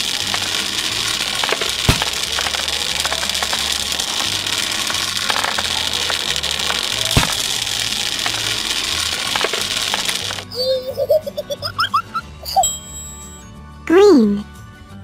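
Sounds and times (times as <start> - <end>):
small balls clattering into heap: 0.0 - 11.9.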